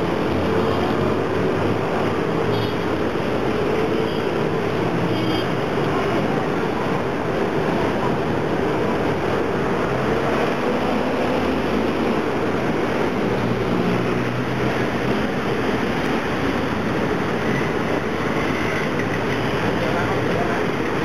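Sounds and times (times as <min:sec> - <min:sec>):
car engines and tyres: 0:00.0 - 0:21.0
bus engine drone passing: 0:05.6 - 0:21.0.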